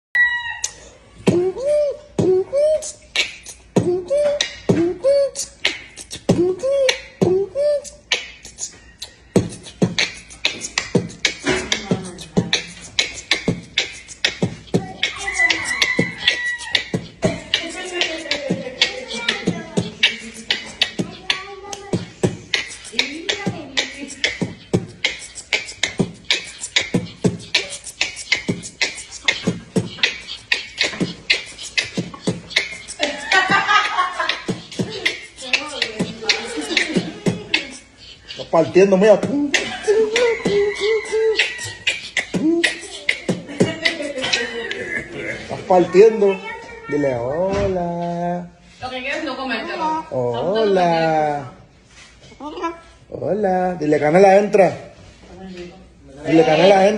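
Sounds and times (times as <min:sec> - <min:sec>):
short gliding vocal line: 0:00.2 - 0:46.5
man beatboxing: 0:00.6 - 0:48.6, 0:53.2 - 0:55.0, 0:56.3 - 0:56.9
hummed notes: 0:01.2 - 0:44.8.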